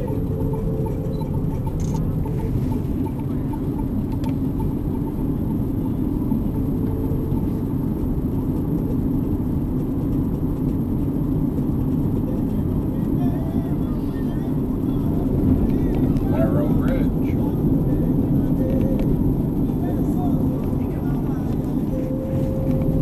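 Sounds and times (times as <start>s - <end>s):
car road noise from inside cabin: 0.0s - 23.0s.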